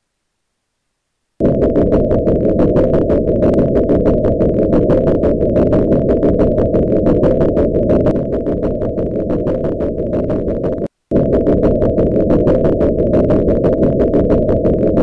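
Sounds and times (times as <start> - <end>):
rapid engine ticking: 1.4 - 15.0.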